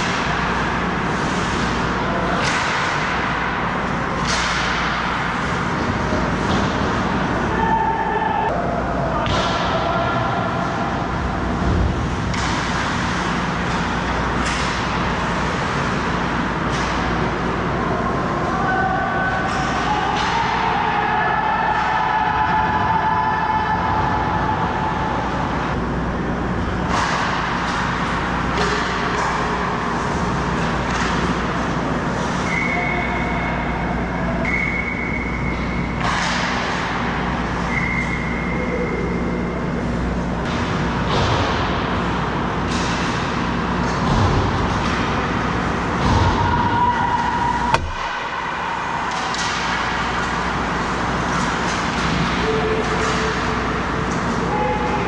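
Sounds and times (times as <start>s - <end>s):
sticks and puck clacking: 0.0s - 7.0s, 26.9s - 31.7s, 46.9s - 55.0s
sharp knock: 47.7s - 48.3s.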